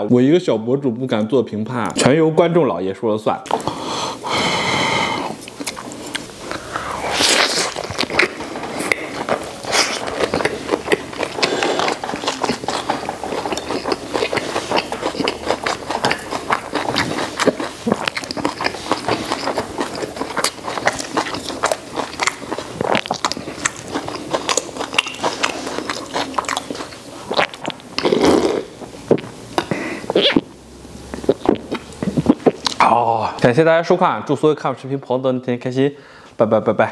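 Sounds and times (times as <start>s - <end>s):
chewing and crunching: 5.4s - 30.4s.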